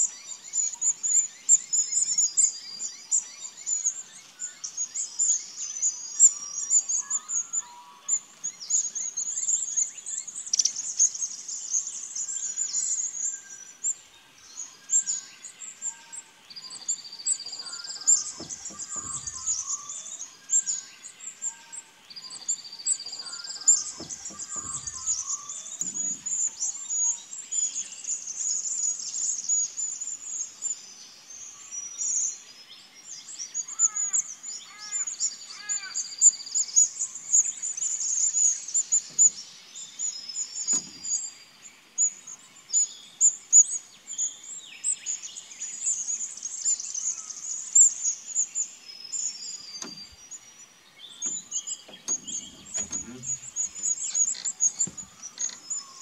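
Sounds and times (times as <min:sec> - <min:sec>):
birds singing and chirping: 0:00.0 - 0:56.0
low repeated bird calls: 0:00.0 - 0:56.0.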